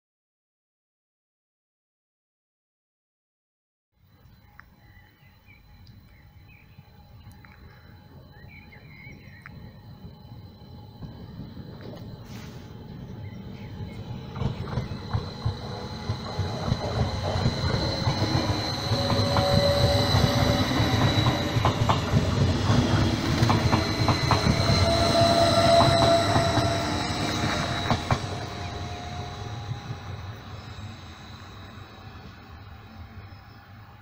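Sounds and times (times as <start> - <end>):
low train rumble: 4.4 - 34.0
steady high whine: 4.5 - 34.0
train wheels clacking over joints: 14.0 - 30.0.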